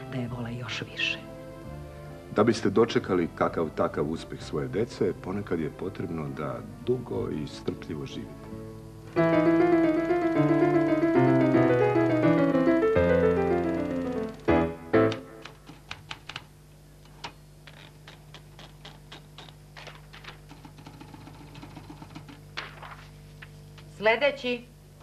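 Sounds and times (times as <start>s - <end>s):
descending musical jingle: 9.2s - 15.2s.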